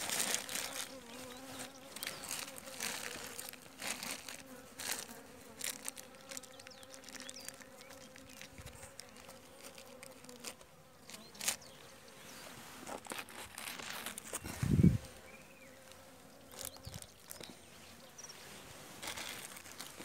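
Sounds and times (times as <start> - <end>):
honeybees humming: 0.0 - 20.0
rustles from handling: 18.4 - 20.0.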